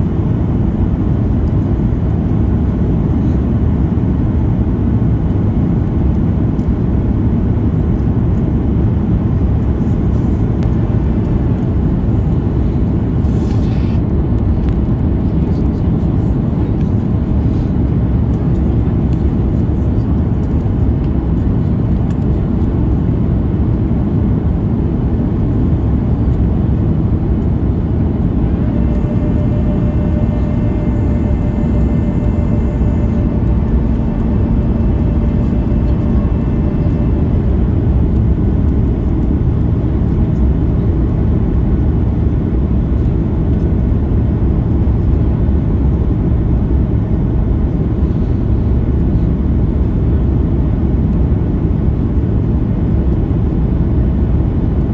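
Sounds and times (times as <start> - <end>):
airflow rush and jet engines: 0.0 - 54.9
faint whining tone: 25.9 - 40.7.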